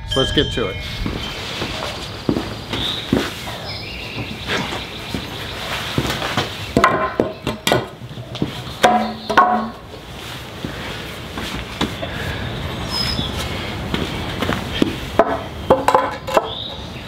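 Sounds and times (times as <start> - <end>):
board clattering onto concrete: 6.0 - 8.1, 8.8 - 9.8, 15.2 - 16.6
wooden boards knocking together: 6.0 - 8.1, 8.8 - 9.8, 15.2 - 16.6.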